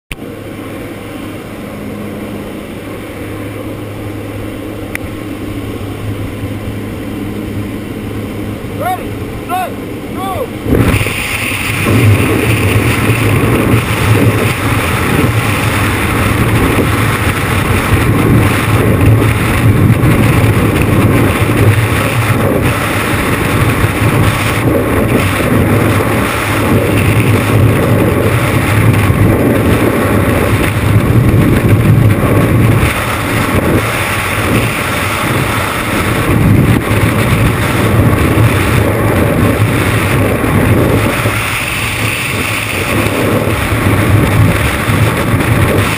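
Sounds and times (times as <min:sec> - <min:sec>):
wind roaring across microphone: 0:00.1 - 0:45.9.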